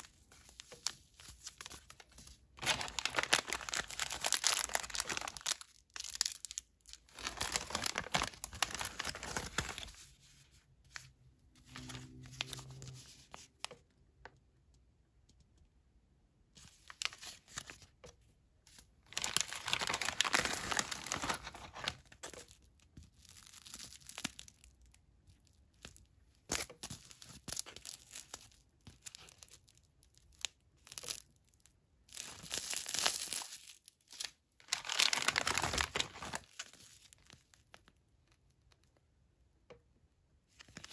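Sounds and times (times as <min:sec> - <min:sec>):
plastic and foil packets crinkling: 0:00.0 - 0:10.2, 0:11.6 - 0:13.4, 0:18.8 - 0:38.9.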